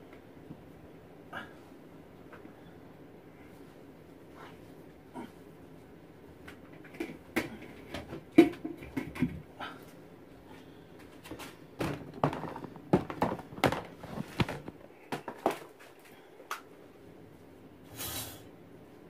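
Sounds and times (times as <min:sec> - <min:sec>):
household items knocking and clattering: 0:06.6 - 0:09.5, 0:11.2 - 0:15.8.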